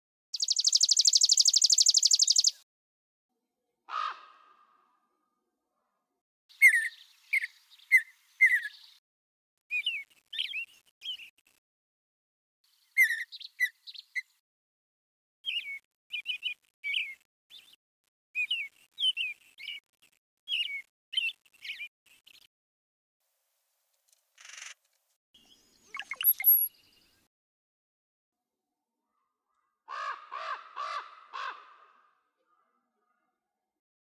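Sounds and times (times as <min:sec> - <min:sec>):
bird chirping: 0:00.4 - 0:02.6, 0:06.5 - 0:09.0, 0:12.7 - 0:14.4, 0:25.4 - 0:27.3.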